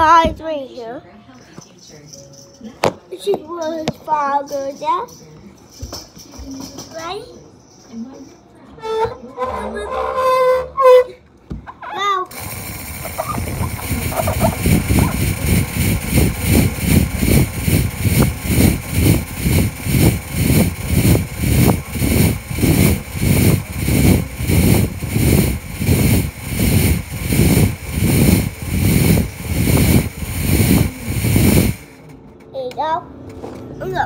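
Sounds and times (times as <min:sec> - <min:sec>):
fog machine buzzing hiss: 0:12.3 - 0:32.1.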